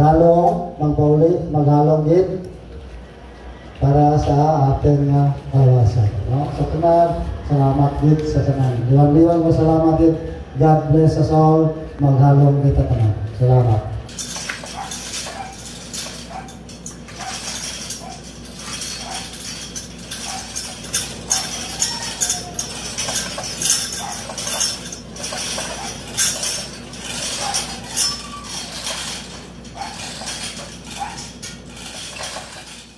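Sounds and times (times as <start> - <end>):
steady low hum: 0.0 - 32.9
light metallic clinking: 14.1 - 32.9.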